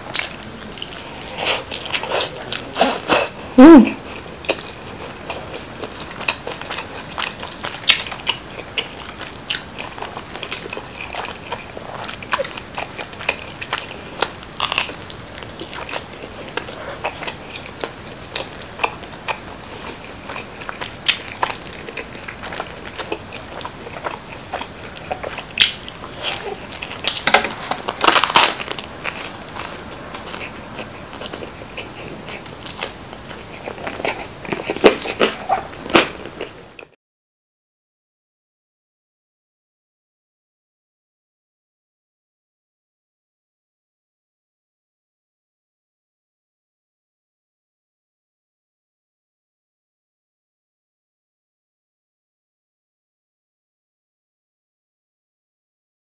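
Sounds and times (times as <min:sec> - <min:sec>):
pizza crust crunching: 0:00.0 - 0:03.3, 0:04.1 - 0:36.6.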